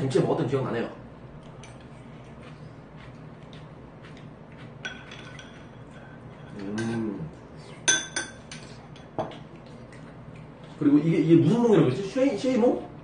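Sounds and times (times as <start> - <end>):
metal spoon clinking ceramic bowl: 4.8 - 5.6, 7.9 - 9.3.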